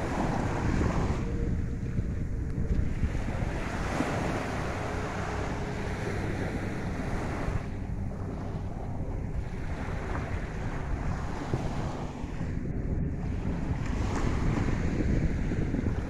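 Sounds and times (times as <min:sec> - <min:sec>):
waves washing on sandy shore: 0:00.0 - 0:01.8, 0:02.5 - 0:16.0
wind rumbling on microphone: 0:00.0 - 0:16.0.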